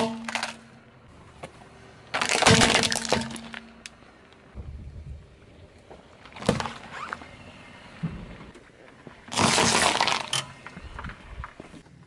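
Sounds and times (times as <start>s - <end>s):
cucumber crunching and squashing: 2.1s - 3.6s, 9.3s - 10.4s.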